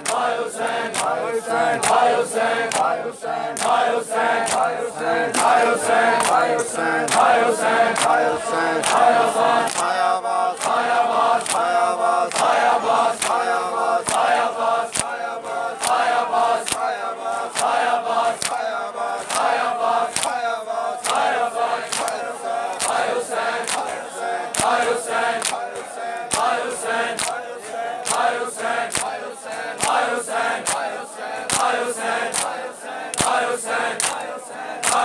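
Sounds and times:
men chanting a lament: 0.0 - 35.0.

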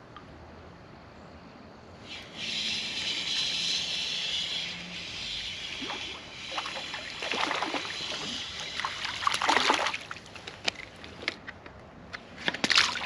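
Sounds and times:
water splashing beside kayak: 5.8 - 10.4.

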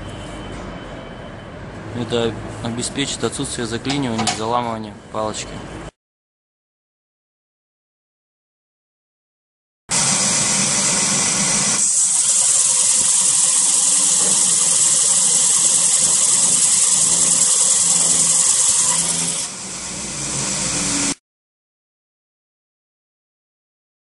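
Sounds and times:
belt sander hissing on wood: 9.9 - 21.2.

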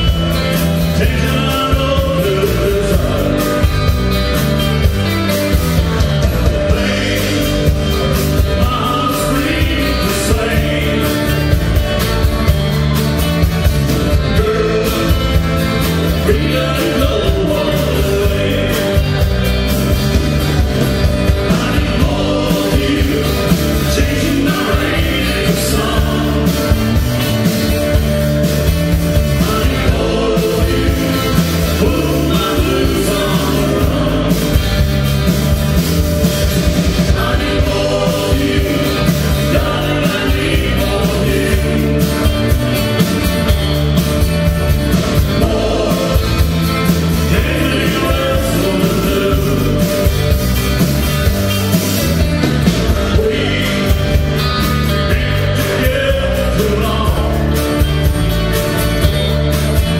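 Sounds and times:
person singing: 0.0 - 3.7, 6.7 - 11.6, 16.1 - 19.3, 21.4 - 26.8, 29.3 - 34.6, 37.0 - 42.3, 45.2 - 46.5, 47.2 - 50.1
live country band playing: 0.0 - 59.9.

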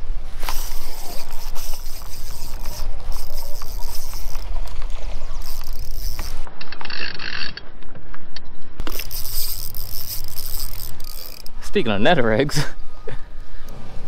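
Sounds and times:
fishing reel clicking: 0.4 - 4.8, 5.4 - 7.6, 8.8 - 11.7.

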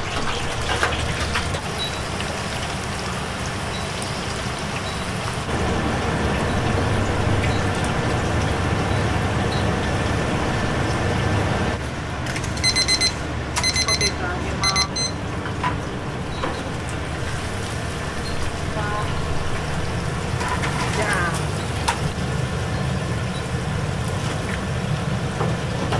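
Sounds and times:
oil bubbling in deep fryer: 0.0 - 13.2, 15.0 - 25.9
digital kitchen timer beeping: 12.6 - 15.2.

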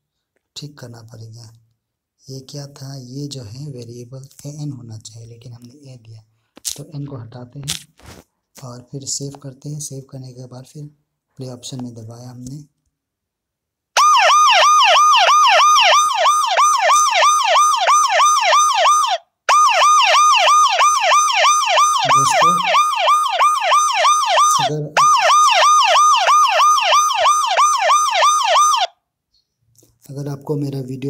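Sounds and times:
ambulance siren yelping: 14.0 - 28.9.

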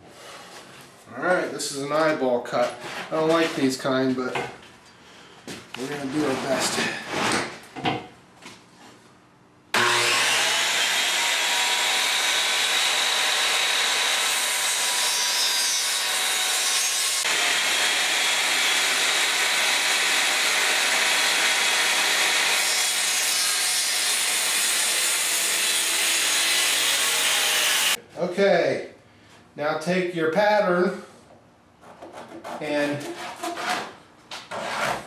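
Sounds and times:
circular saw cutting board: 9.8 - 28.0.

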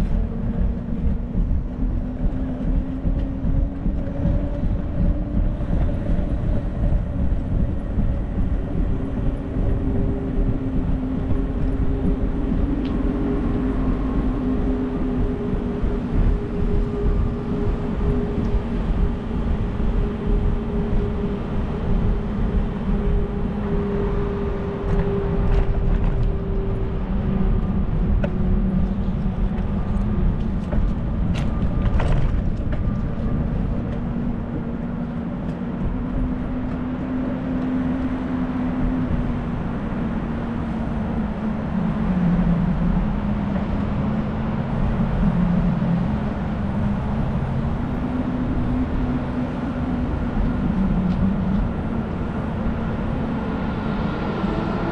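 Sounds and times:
traffic hum: 0.0 - 54.9
wind and rolling bicycle noise: 0.0 - 54.9.

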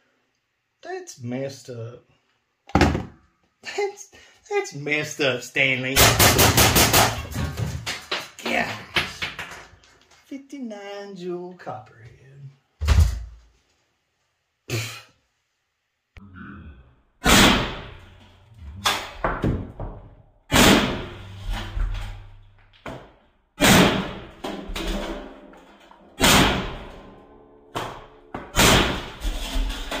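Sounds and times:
air gun shots: 17.2 - 18.0, 20.5 - 21.3, 23.6 - 24.3, 26.2 - 26.9, 28.5 - 29.2.

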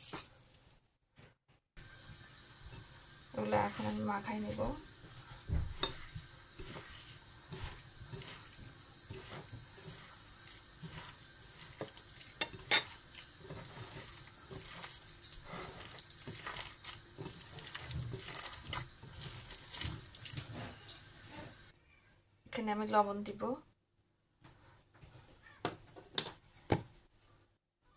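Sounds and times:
hand squelching food mixture: 1.9 - 20.8.

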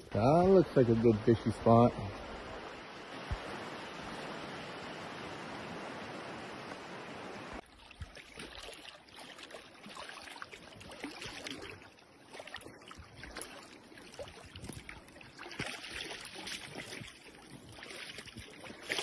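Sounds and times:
river water rippling over rocks: 0.0 - 19.0
fish splashing in water: 7.6 - 19.0.

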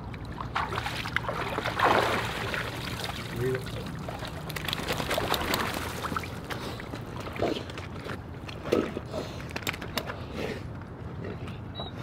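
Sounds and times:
water sloshing and splashing: 0.0 - 9.1.

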